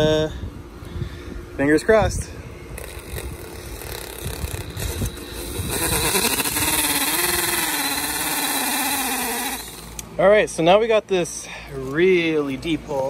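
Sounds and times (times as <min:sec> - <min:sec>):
cordless drill auger boring into soil: 0:02.8 - 0:10.0.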